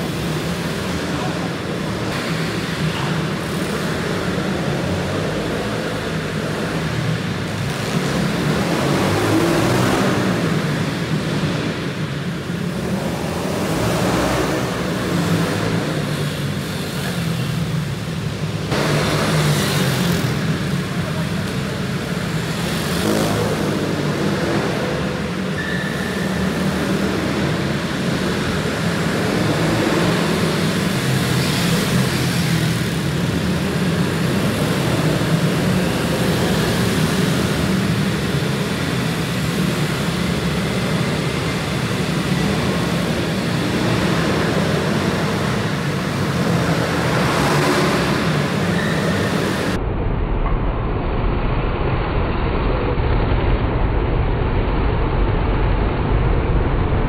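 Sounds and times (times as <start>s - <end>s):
pit bike engines droning: 0.0s - 50.5s.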